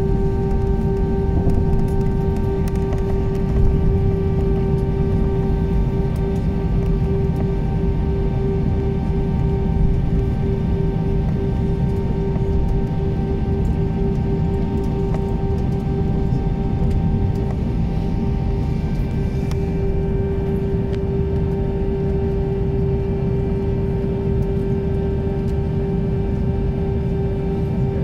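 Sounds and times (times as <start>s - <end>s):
aircraft cabin engine drone: 0.0s - 28.0s.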